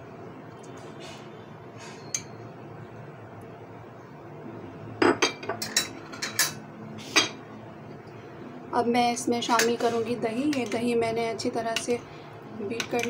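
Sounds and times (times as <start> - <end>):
faint background hum: 0.0 - 13.0
spoon and glass bowls clinking: 5.0 - 6.6.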